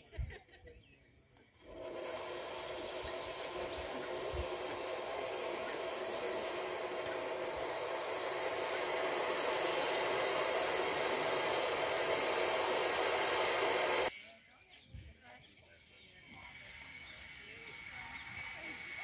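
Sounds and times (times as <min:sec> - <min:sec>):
steam hissing from locomotive: 0:01.6 - 0:14.1, 0:16.2 - 0:19.0.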